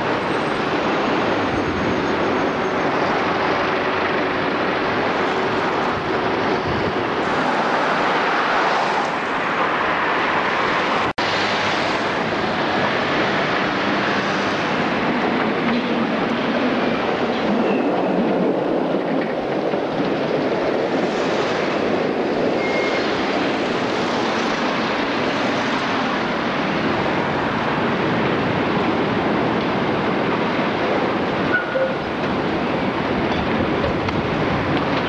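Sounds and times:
cars passing on wet road: 0.0 - 35.0
tram running on rails: 0.0 - 35.0.

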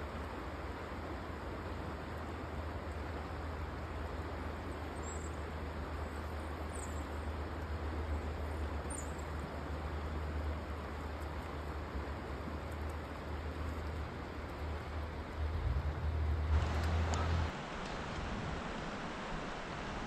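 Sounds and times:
water rushing over rocks: 0.5 - 20.0
low rumble: 15.2 - 19.5.

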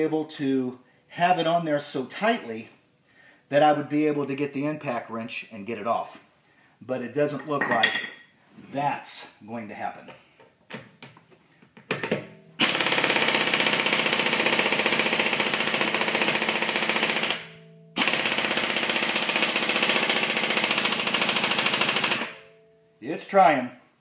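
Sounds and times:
air impact wrench hammering: 12.0 - 22.5.

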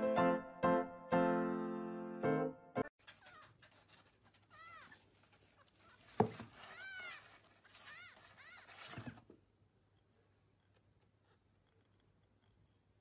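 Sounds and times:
scratching on cardboard: 3.0 - 9.3.

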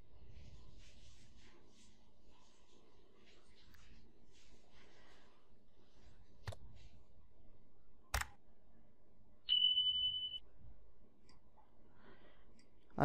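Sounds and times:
steady high beep: 9.5 - 10.4.

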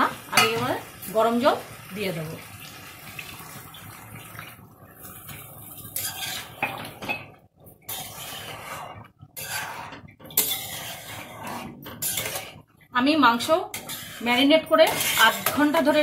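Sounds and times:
metal spatula scraping a pan: 5.4 - 7.2, 7.8 - 16.0.

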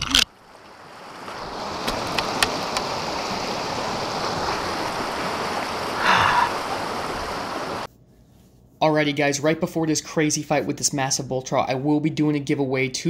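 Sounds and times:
creek rushing over rocks: 0.3 - 7.9.

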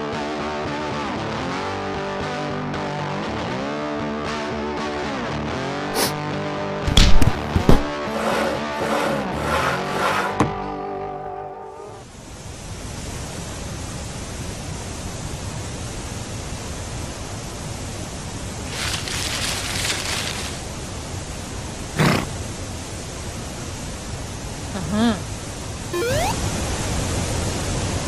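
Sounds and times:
rustling: 18.7 - 20.7.

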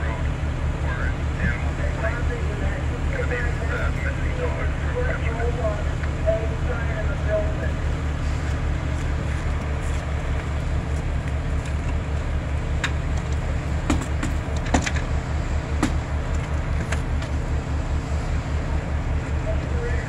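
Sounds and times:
diesel engine throbbing: 0.0 - 20.0
sharp knocks and clicks: 12.8 - 15.1, 15.8 - 17.4.

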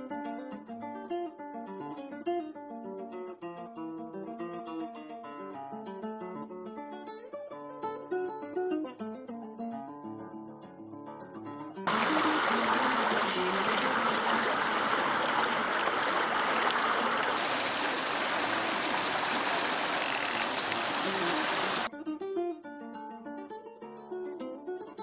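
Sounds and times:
acoustic guitar music: 0.0 - 12.4
water tumbling over rocks: 11.9 - 21.9.

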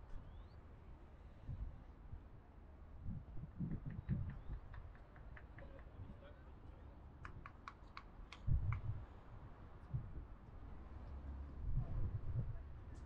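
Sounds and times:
light sharp clicks: 3.7 - 6.0, 7.2 - 8.9.

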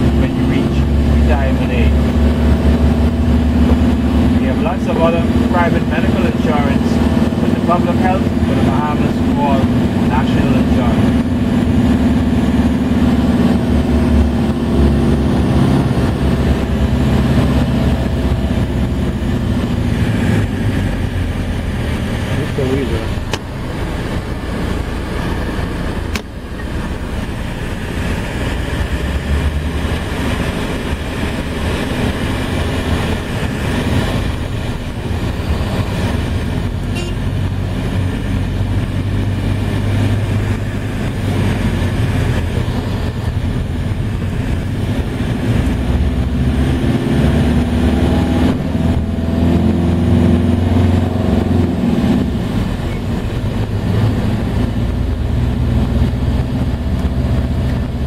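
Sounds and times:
vehicle engine hum: 0.0 - 58.0
tyre and wind noise: 23.0 - 58.0.

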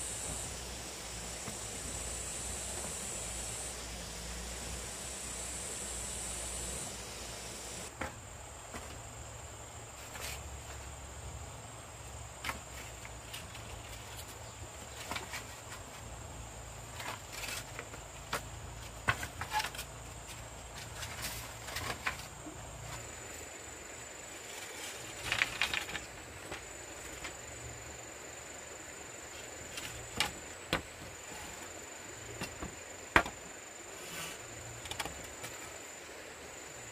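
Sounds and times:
high-pitched insect drone: 0.0 - 7.9.

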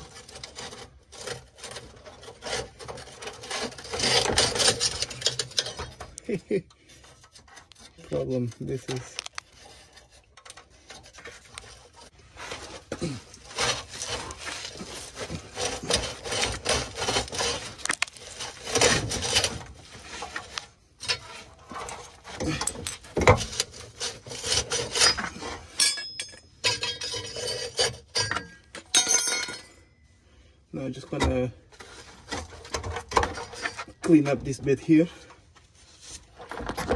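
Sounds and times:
scraping on exhaust pipe: 0.0 - 28.8.

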